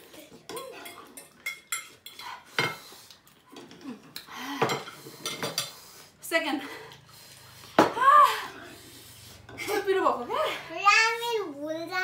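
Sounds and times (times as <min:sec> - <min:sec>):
cutlery clinking on plates: 0:00.4 - 0:02.9, 0:03.5 - 0:05.8.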